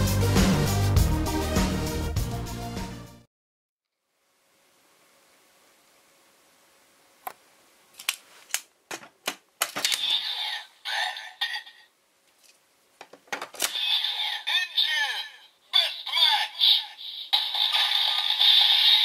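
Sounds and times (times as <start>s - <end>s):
plastic clicks: 8.0s - 10.1s
toy sound effects: 9.8s - 11.9s, 13.6s - 19.0s
toy electronic voice announcement: 9.9s - 11.9s, 13.6s - 19.0s.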